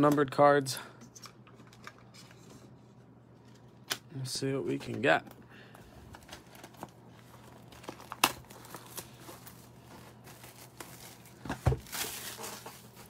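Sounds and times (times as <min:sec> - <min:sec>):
cardboard crinkling and tearing: 0:06.1 - 0:13.0.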